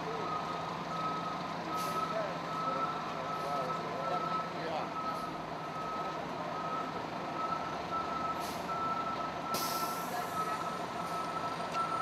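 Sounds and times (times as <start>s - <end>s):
fire engine running: 0.0s - 12.0s
reversing alarm beeping: 0.2s - 12.0s
short hiss of air: 9.6s - 10.1s.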